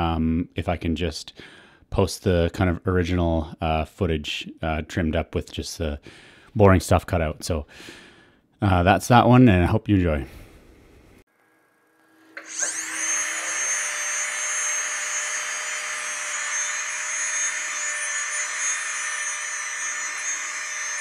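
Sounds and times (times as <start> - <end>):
dental handpiece whining: 12.0 - 21.0.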